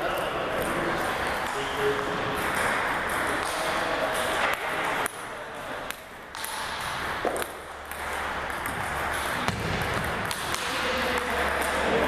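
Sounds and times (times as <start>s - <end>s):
gymnasium hubbub: 0.0s - 12.0s
table tennis ball clicking: 2.4s - 12.0s.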